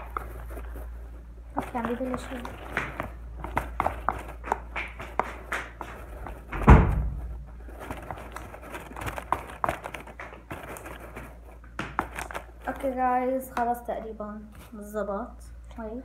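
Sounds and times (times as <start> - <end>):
fingers clicking and scraping plastic: 1.5 - 13.8
loud thump: 6.5 - 7.3.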